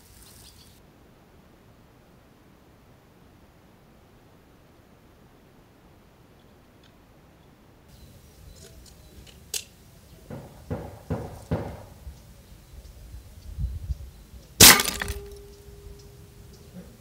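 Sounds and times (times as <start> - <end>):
compact disc shattering: 14.6 - 15.5.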